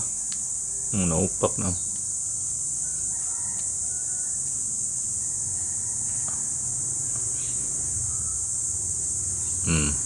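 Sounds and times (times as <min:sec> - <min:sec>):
high-pitched insect drone: 0:00.0 - 0:10.0
faint ticks: 0:03.5 - 0:03.8.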